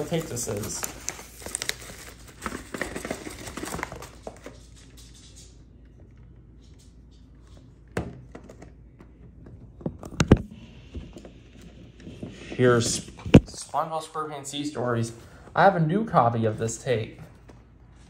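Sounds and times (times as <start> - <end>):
packaging crinkling and rustling: 0.0 - 5.0.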